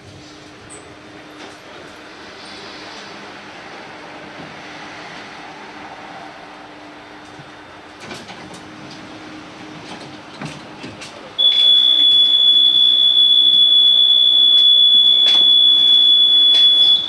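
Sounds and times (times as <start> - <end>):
tram low steady hum: 0.0 - 17.0
high-pitched warning beep: 11.4 - 17.0.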